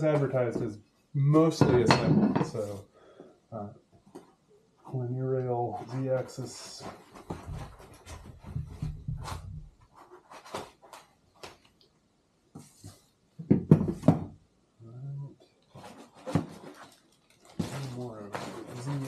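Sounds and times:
cardboard and foam rustling: 0:04.8 - 0:11.6, 0:15.7 - 0:19.0.

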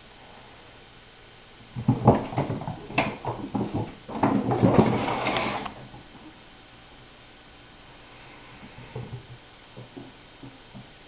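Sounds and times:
kittens' paws scampering on wood: 0:01.7 - 0:06.3, 0:08.6 - 0:11.0
kitten thumping against wall: 0:01.8 - 0:05.2.

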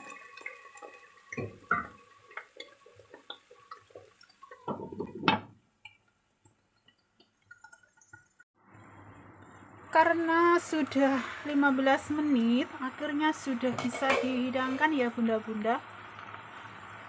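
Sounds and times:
liquid simmering with popping bubbles: 0:00.0 - 0:09.8, 0:15.4 - 0:17.0.

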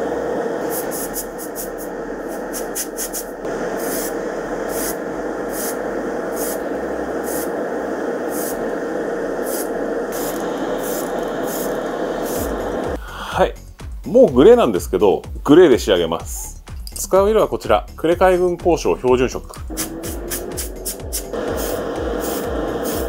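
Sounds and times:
extraction fan noise: 0:00.0 - 0:13.0, 0:18.8 - 0:23.0
aerosol can hissing in bursts: 0:00.6 - 0:13.0, 0:19.5 - 0:23.0.

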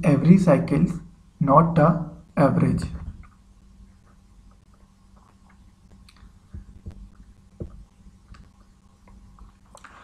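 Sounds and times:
faint electrical hum: 0:00.0 - 0:10.0
soft thumps: 0:06.5 - 0:07.9.

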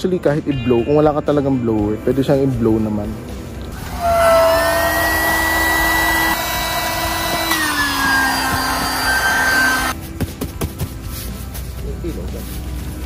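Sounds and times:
electric air pump whining: 0:03.8 - 0:10.0.

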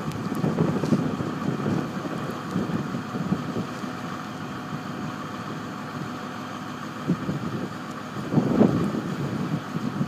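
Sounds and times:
wind rumbling on microphone: 0:00.0 - 0:05.2, 0:06.9 - 0:10.0
diesel engine running: 0:00.0 - 0:10.0.

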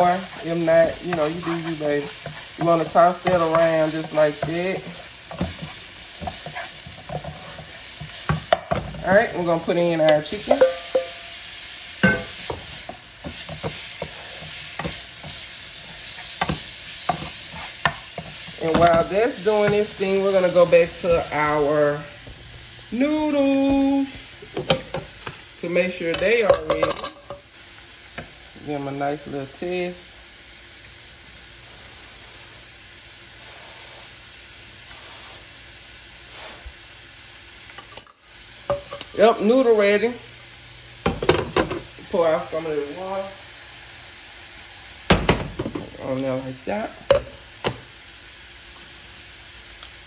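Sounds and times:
wooden spoon scraping pan: 0:00.0 - 0:11.0, 0:12.0 - 0:21.8
chicken sizzling in hot oil: 0:00.0 - 0:50.0.

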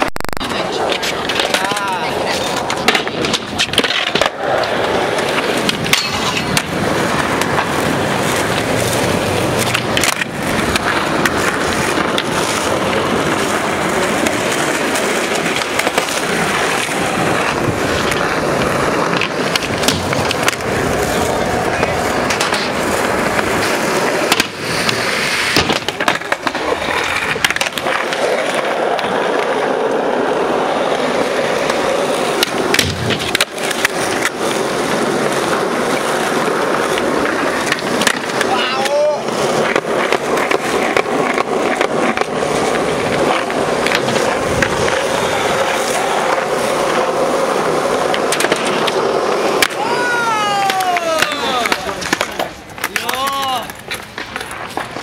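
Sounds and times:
skateboard wheels rolling on asphalt: 0:00.0 - 0:55.0
skateboard wooden clacks: 0:00.0 - 0:55.0.

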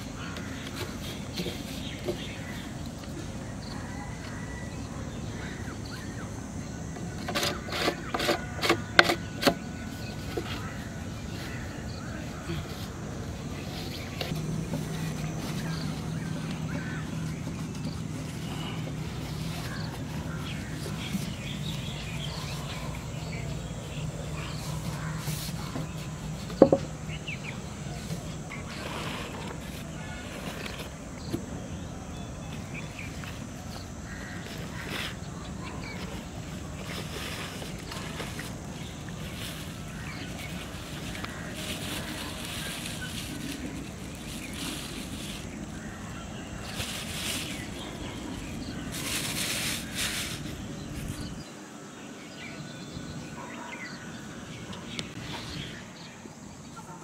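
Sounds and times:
birds chirping: 0:00.0 - 0:57.0
plastic bag crinkling: 0:36.6 - 0:51.3.

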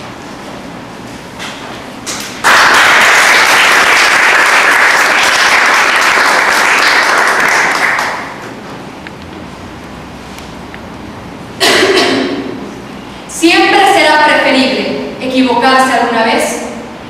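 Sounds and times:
audience applauding: 0:02.4 - 0:08.6.

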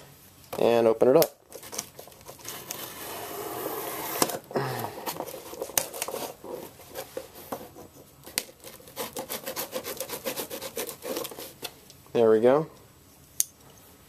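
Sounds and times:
knife cutting packing tape: 0:01.6 - 0:06.5, 0:08.3 - 0:11.7.

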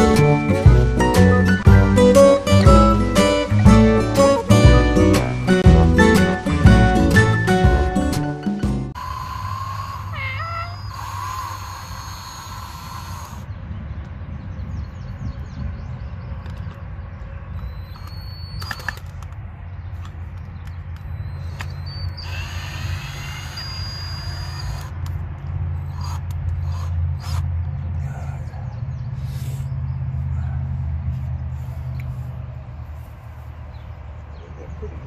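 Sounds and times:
cordless drill driving screw: 0:11.0 - 0:13.4, 0:22.2 - 0:25.1.

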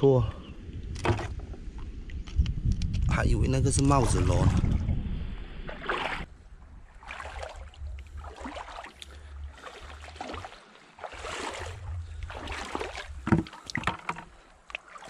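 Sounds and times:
low wind rumble on microphone: 0:00.0 - 0:08.5, 0:11.5 - 0:13.3
seawater splashing among rocks: 0:05.7 - 0:06.3, 0:07.0 - 0:15.0.

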